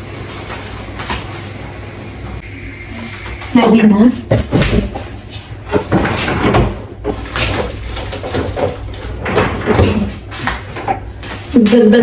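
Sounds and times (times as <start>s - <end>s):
items shifted in refrigerator: 4.5s - 12.0s.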